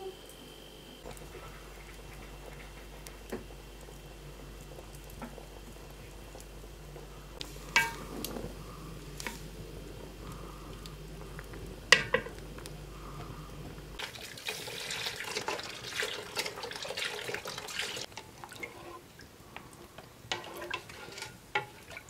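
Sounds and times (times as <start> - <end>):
burning wood popping: 1.0 - 18.5
spoon stirring in metal pan: 7.4 - 8.3, 14.5 - 19.1, 20.0 - 22.0.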